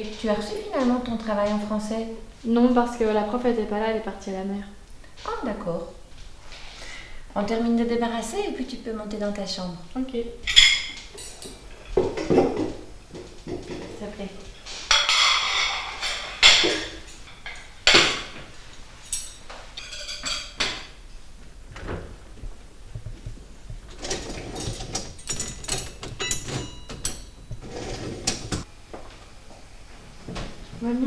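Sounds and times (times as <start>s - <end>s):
cutlery clinking: 10.5s - 11.6s, 14.9s - 18.4s, 19.0s - 21.0s, 24.0s - 28.6s
plates and glasses knocking: 19.8s - 20.9s.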